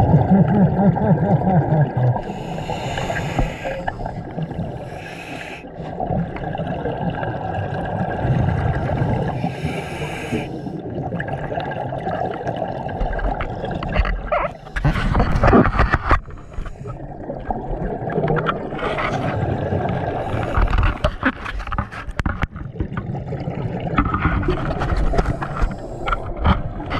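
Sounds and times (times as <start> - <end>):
exhaust bubbles bubbling: 0.0 - 5.0, 5.8 - 9.7
steady underwater rumble: 0.0 - 26.9
regulator hissing inhales: 2.2 - 5.7, 9.4 - 10.8.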